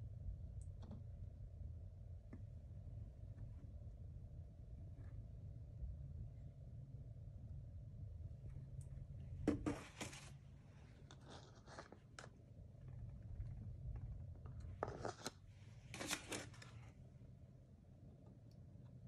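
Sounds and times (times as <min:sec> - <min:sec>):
faint low hum: 0:00.0 - 0:19.0
plastic scraping and rattling: 0:09.4 - 0:10.4, 0:11.0 - 0:16.9.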